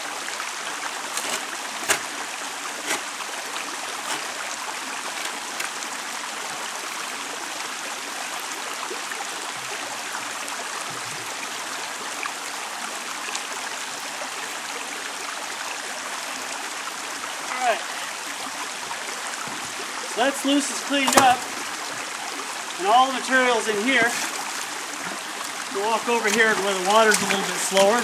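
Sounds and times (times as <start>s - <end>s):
water splashing: 0.0s - 6.3s, 17.4s - 28.0s
shallow creek rushing: 0.0s - 28.0s.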